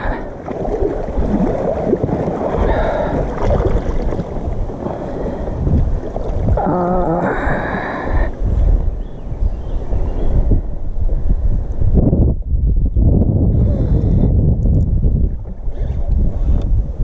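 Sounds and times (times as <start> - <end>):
water sloshing: 0.0 - 8.8
wind buffeting microphone: 0.0 - 17.0
person's wavering vocal sound: 6.6 - 8.3.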